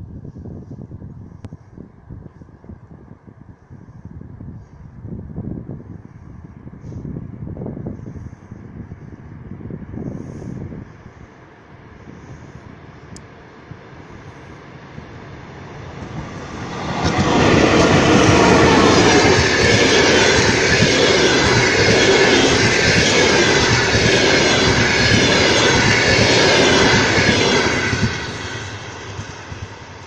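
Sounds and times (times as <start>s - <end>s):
passenger train passing: 10.4s - 30.0s.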